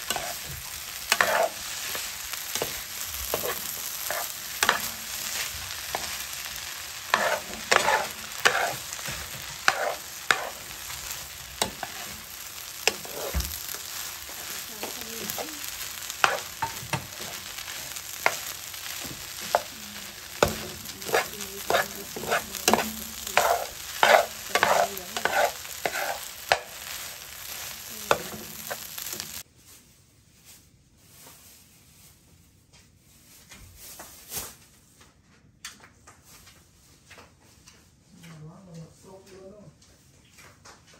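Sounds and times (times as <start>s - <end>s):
metal spatula scraping a pan: 0.0s - 29.4s
rice sizzling in a frying pan: 0.0s - 29.8s, 33.0s - 34.8s.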